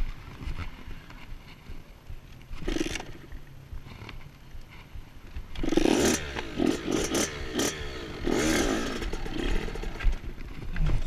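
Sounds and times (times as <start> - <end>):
dirt bike engine revving: 2.6 - 3.4, 5.5 - 10.3.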